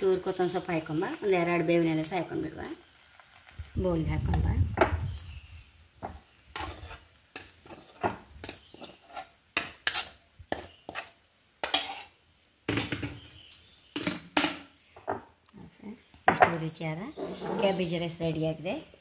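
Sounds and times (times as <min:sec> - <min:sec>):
spoon scraping metal pan: 0:06.1 - 0:13.2, 0:17.1 - 0:18.0.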